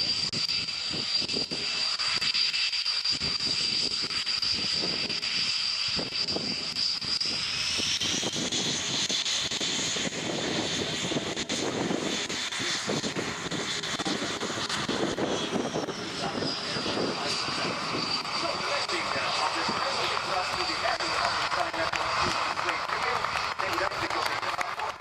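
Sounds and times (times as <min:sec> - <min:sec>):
jet engines whining: 0:00.0 - 0:25.0
deep engine rumble: 0:07.8 - 0:25.0.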